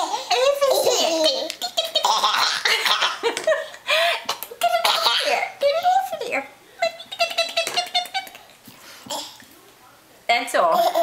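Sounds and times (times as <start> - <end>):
toddler laughing: 0.0 - 3.6, 6.8 - 8.5.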